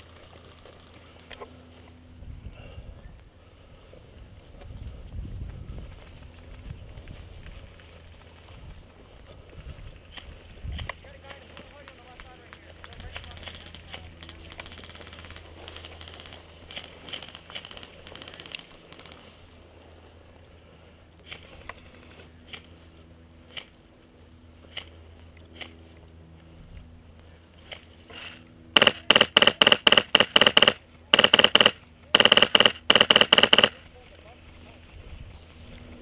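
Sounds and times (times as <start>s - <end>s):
airsoft rifle firing bursts: 28.8s - 33.8s.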